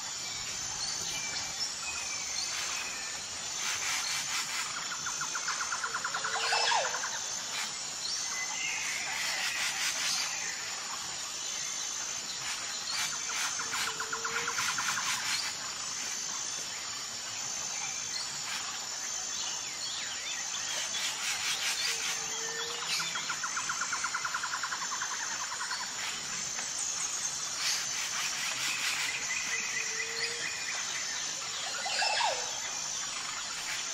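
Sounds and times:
high insect whine: 0.0s - 33.9s
birds chirping and trilling: 18.0s - 33.9s.

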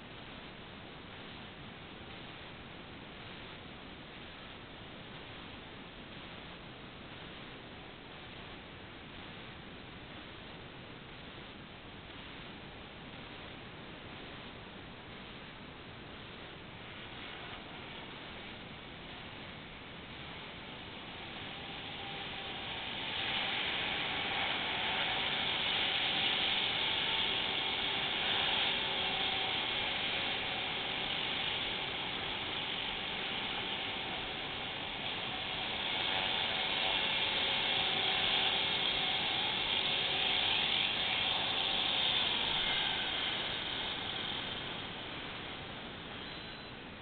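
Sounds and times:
rc helicopter motor whining: 20.2s - 46.8s
rotor buzzing: 20.2s - 46.8s.

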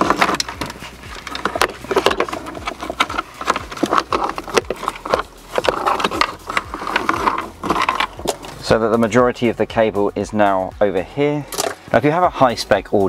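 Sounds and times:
cable rustling: 0.0s - 8.8s.

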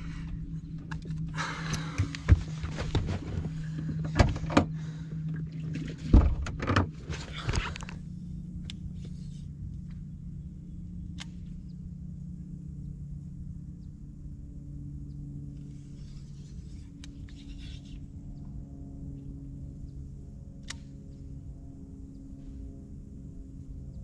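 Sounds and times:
low electric hum: 0.0s - 24.0s
knocks and thumps on boat deck: 1.8s - 4.8s, 5.9s - 7.7s.

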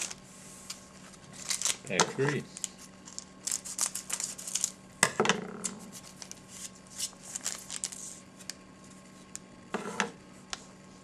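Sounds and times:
cards rustling: 0.0s - 4.8s, 5.9s - 8.5s
wrapper crinkling: 1.2s - 4.8s, 6.0s - 8.0s.

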